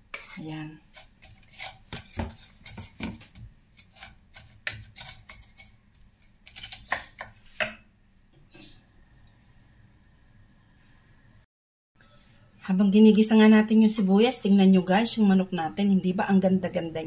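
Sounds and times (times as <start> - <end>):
wooden spatula scraping frying pan: 0.1 - 5.7.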